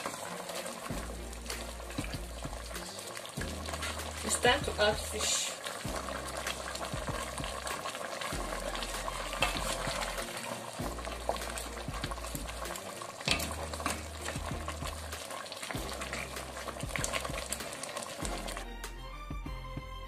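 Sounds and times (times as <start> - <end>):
stock bubbling in a steel pot: 0.0 - 18.7
spoon stirring: 8.7 - 15.1.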